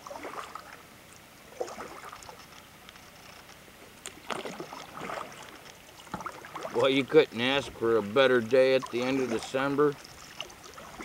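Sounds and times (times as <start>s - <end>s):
water splashes and drips: 0.0s - 3.0s, 4.0s - 11.0s
kayak paddle strokes in water: 0.0s - 11.0s.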